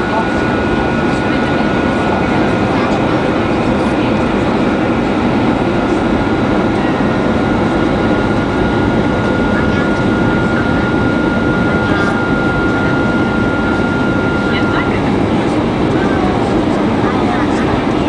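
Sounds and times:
airflow and jet engine noise: 0.0 - 18.0.

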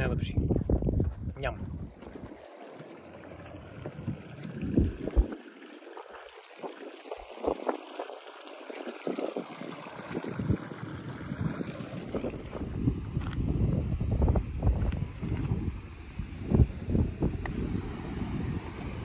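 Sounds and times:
creek water gurgling over rock: 1.7 - 12.7.

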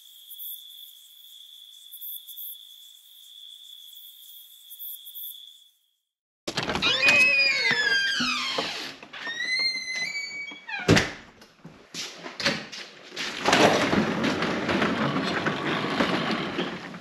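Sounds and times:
garage door thunk: 10.8 - 11.4
garage door rattling up tracks: 13.1 - 17.0.

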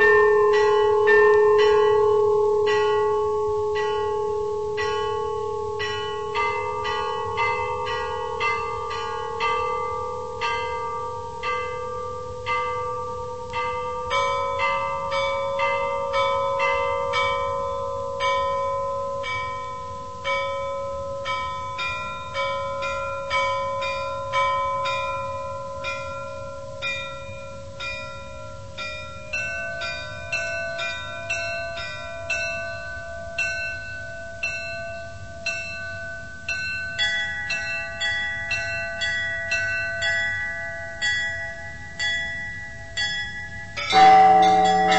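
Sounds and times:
bells ringing: 0.0 - 44.9
held tones: 43.9 - 44.9.

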